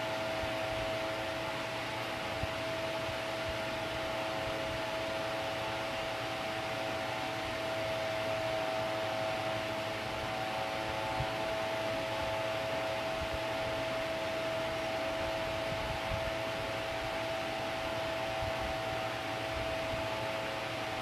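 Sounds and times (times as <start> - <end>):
machine-like hum: 0.0 - 21.0.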